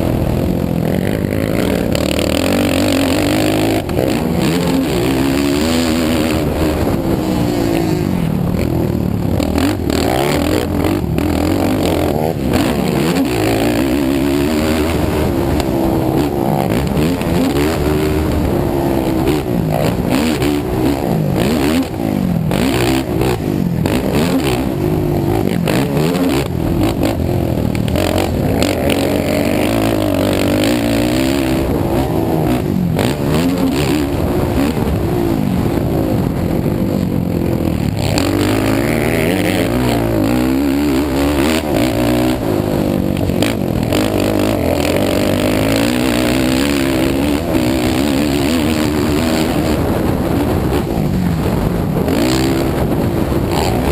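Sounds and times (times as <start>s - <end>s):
atv engine revving: 0.0s - 53.9s.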